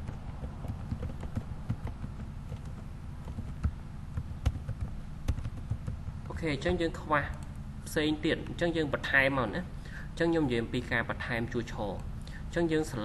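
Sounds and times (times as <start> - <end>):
keyboard keys clicking: 0.0 - 6.4
steady low hum: 0.0 - 13.0.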